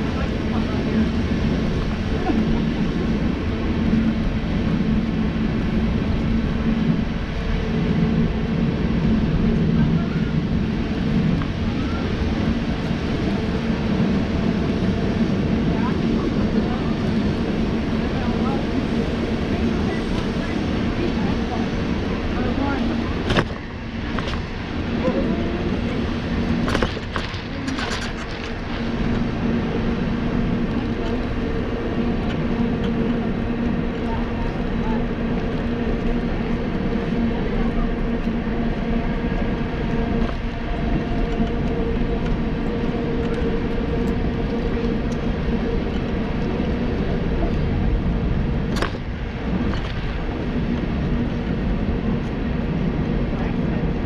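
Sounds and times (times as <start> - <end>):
low rumble of wheels: 0.0 - 54.0
mobility scooter motor hum: 0.0 - 54.0.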